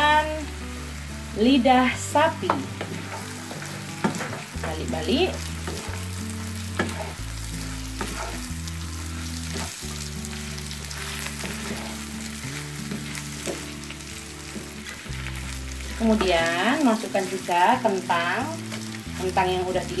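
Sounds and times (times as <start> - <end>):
meat sizzling in a wok: 0.0 - 20.0
soft background music: 0.0 - 20.0
wooden spatula scraping a pan: 2.5 - 17.7.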